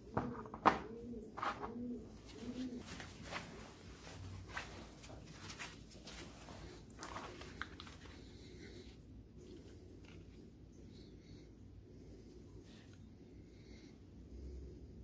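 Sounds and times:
pigeon cooing: 0.0s - 4.3s.

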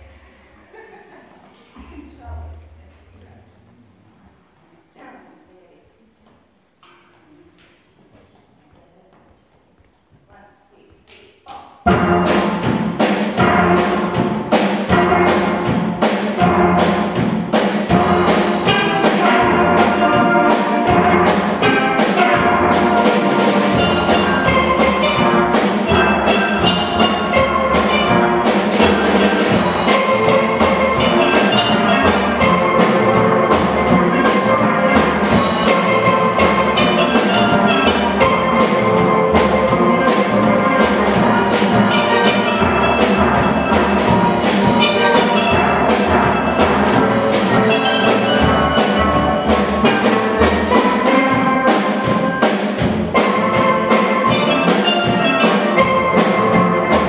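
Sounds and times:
drum kit: 11.8s - 57.0s
steel band playing: 11.8s - 57.0s.

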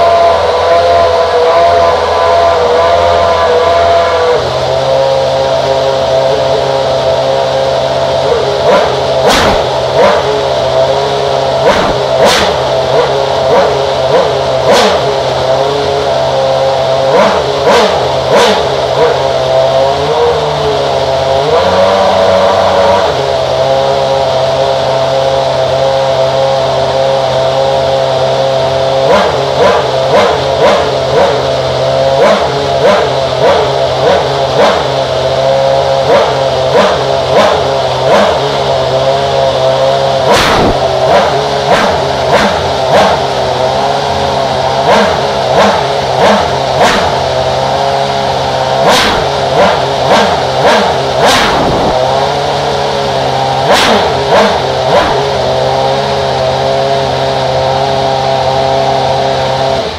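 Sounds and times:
racing car engine revving: 0.0s - 59.9s.

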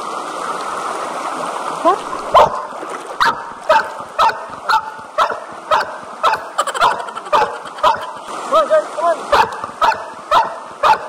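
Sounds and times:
shallow river rushing: 0.0s - 11.0s
puppy yipping: 3.2s - 8.2s, 9.3s - 11.0s.

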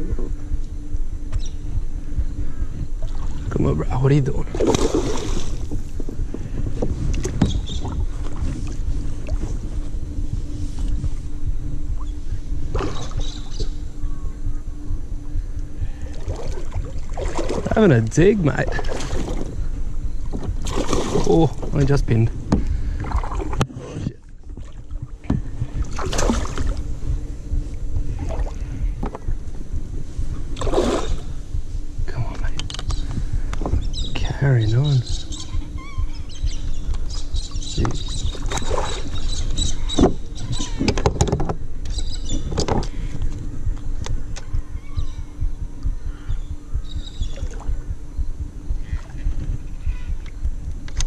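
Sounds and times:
wind on microphone: 0.0s - 51.0s
water moving around kayak: 2.7s - 3.6s, 4.3s - 13.8s, 15.6s - 31.8s, 35.3s - 44.4s.

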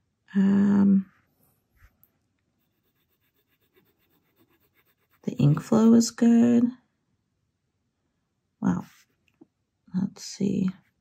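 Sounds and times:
fountain pen scratching paper: 2.6s - 5.8s.

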